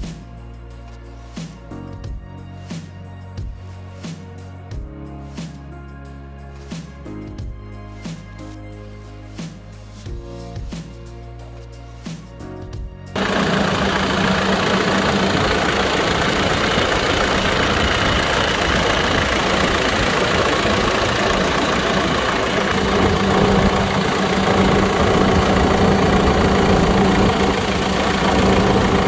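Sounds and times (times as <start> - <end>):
diesel engine idling: 13.2 - 29.0.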